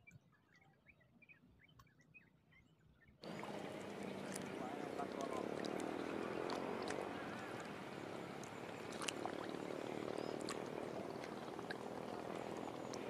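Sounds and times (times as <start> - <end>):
distant motor drone: 3.2 - 13.0.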